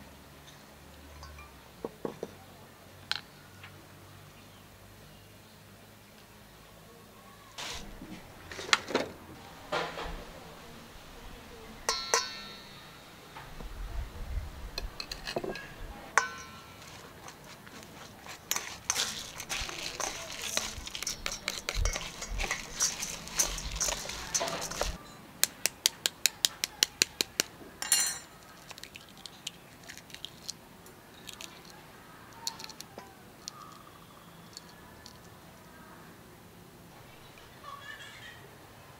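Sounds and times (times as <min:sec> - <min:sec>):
rice grains rustling: 0:07.6 - 0:11.9, 0:16.6 - 0:25.0
spoon scraping metal bowl: 0:14.9 - 0:25.0.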